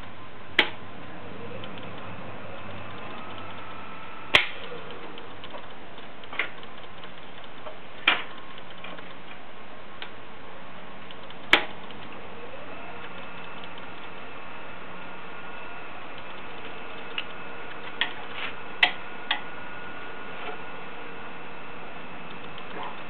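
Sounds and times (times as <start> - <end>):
wood lathe motor whine: 0.8 - 6.8, 10.5 - 23.0
sharp clicks: 1.5 - 9.4, 11.0 - 14.3, 16.1 - 19.5, 22.2 - 23.0.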